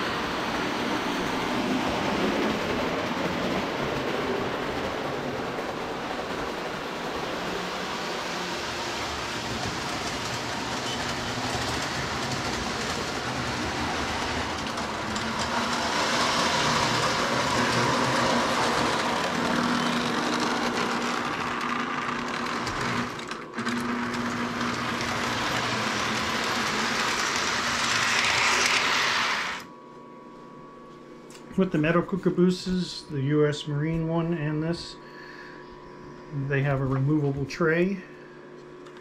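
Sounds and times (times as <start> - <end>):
faint hum: 0.0 - 39.0
toy train rolling on track: 2.2 - 29.7.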